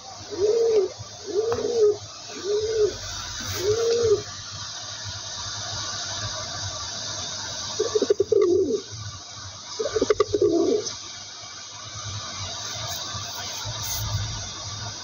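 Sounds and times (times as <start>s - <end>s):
steady background hiss: 0.0s - 15.0s
pigeon cooing: 0.1s - 4.4s, 7.8s - 8.8s, 9.8s - 10.9s.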